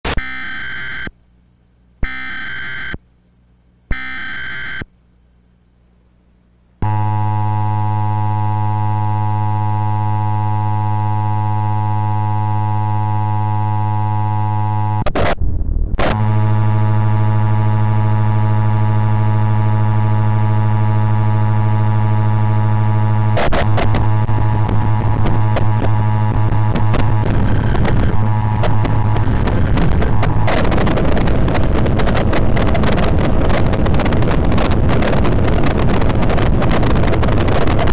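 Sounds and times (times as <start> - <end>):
harsh buzzing alert tone: 0.0 - 1.1, 2.0 - 3.0, 3.9 - 4.9, 6.8 - 33.1
crackles: 4.4 - 37.9.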